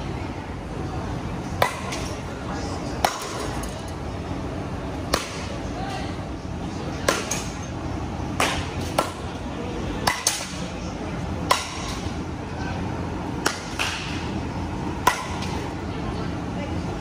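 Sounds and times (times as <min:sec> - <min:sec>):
bat cracking balls: 0:08.4 - 0:09.3, 0:13.4 - 0:14.3.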